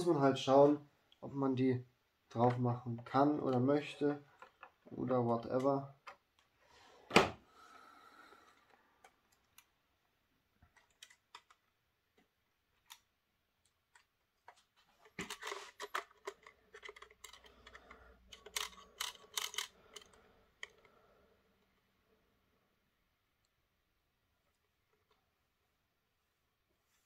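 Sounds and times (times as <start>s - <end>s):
faint plastic clicks: 10.6s - 21.9s.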